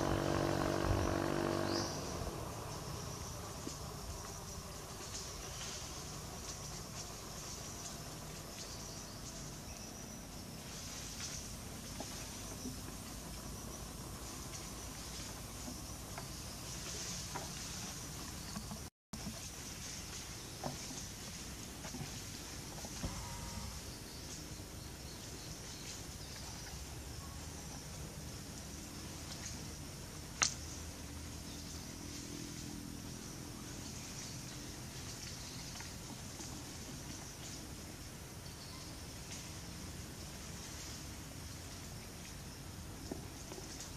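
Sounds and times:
low rumble: 0.0s - 4.7s
high insect drone: 0.0s - 18.9s, 20.9s - 43.9s.

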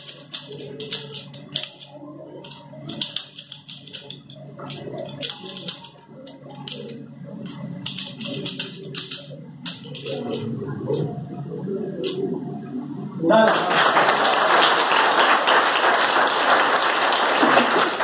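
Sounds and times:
rubik's cube clicking: 0.0s - 10.4s.

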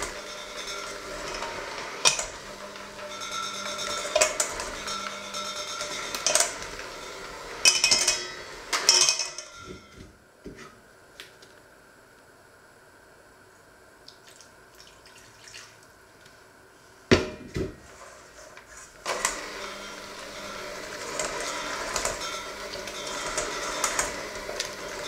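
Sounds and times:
electric hand mixer running: 0.0s - 9.8s, 19.0s - 25.0s
beaters clattering against bowl: 0.0s - 10.0s, 19.1s - 25.0s.

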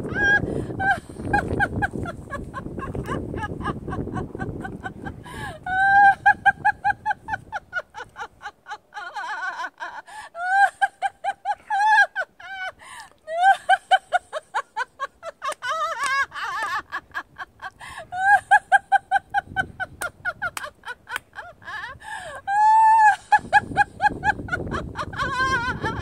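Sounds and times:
wind rumble on microphone: 0.0s - 8.4s, 15.9s - 26.0s
woman laughing in high pulses: 0.0s - 26.0s.

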